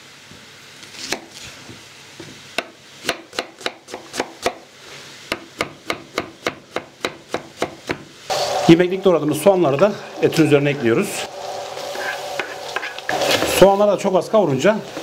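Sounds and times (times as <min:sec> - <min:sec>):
knife chopping on cutting board: 0:02.6 - 0:04.6, 0:05.3 - 0:08.1.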